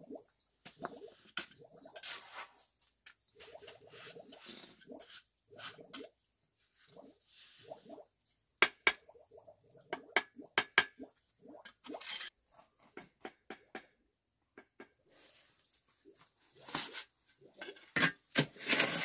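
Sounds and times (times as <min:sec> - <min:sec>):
trowel scraping mortar: 0:12.0 - 0:12.4, 0:17.9 - 0:19.0.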